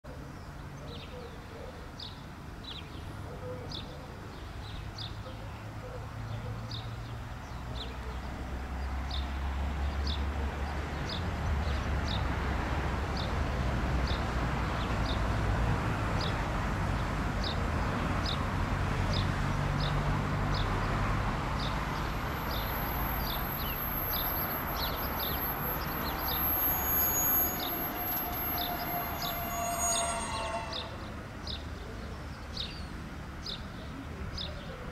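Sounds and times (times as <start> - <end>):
train diesel engines rumbling: 25.4 - 31.5
high brake squeal: 25.5 - 31.2.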